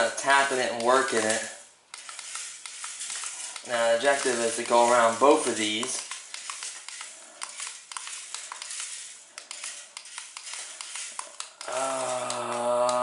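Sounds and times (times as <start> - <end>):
toy car clicking on tiles: 0.4 - 13.0
person humming: 11.6 - 13.0.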